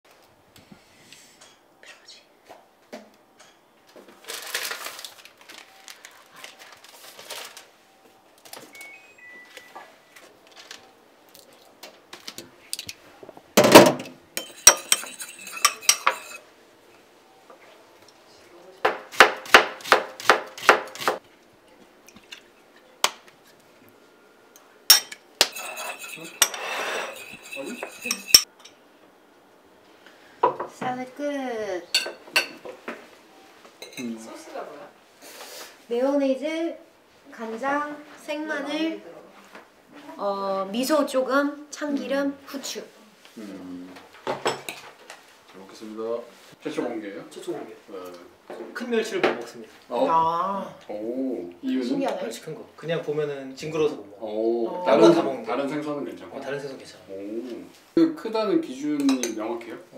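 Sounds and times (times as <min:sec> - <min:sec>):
bottles and utensils knocking: 0:13.6 - 0:16.4, 0:24.9 - 0:28.5
fork clinking against ceramic bowl: 0:14.4 - 0:16.4, 0:24.9 - 0:28.5
fork scraping bowl: 0:14.4 - 0:16.4, 0:25.4 - 0:28.5.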